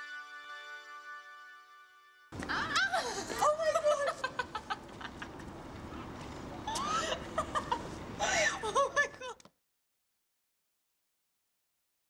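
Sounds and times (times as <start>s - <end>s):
woman laughing: 2.4s - 5.4s, 6.7s - 9.5s.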